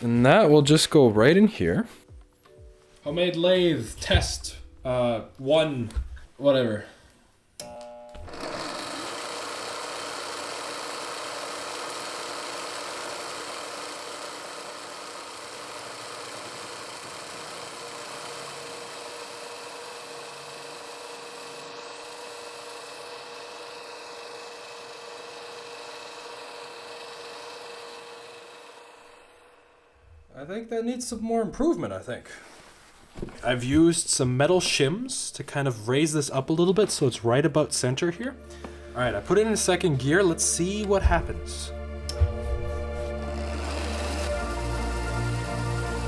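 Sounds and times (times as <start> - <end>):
cutter cutting metal rod: 7.6 - 30.0, 42.2 - 46.0
lathe motor and gears whirring: 7.6 - 30.1, 39.1 - 46.0.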